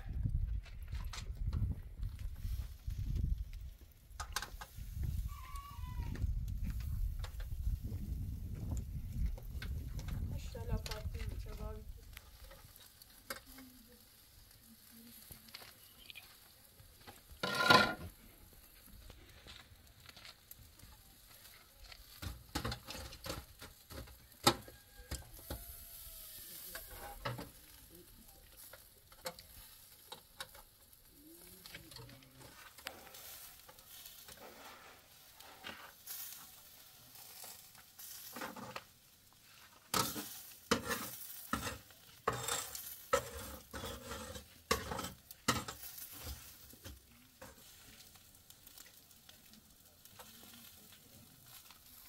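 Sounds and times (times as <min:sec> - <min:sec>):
kebabs sizzling over charcoal: 0:00.0 - 0:52.0
metal clank: 0:17.4 - 0:18.1
metal skewers and tongs clinking: 0:39.9 - 0:46.5.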